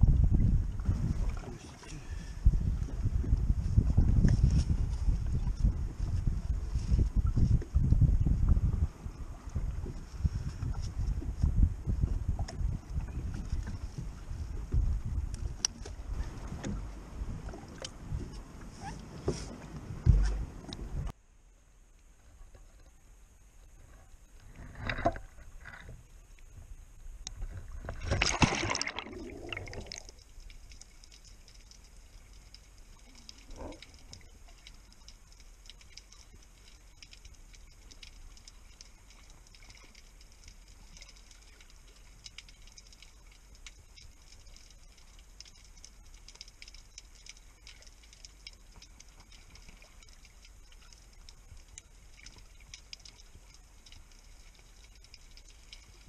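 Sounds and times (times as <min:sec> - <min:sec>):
faint underwater crackle: 0:00.0 - 0:56.0
water splashing: 0:27.8 - 0:56.0.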